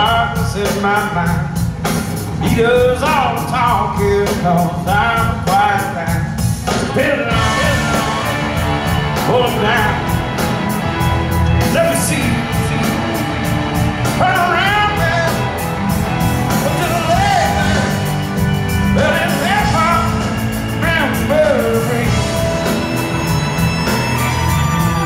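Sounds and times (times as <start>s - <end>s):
man singing: 0.0s - 1.6s, 2.4s - 8.6s, 9.2s - 10.2s, 11.6s - 15.5s, 16.5s - 18.1s, 18.9s - 22.8s
live rock band playing: 0.0s - 25.0s
steady drum beat: 0.0s - 25.0s.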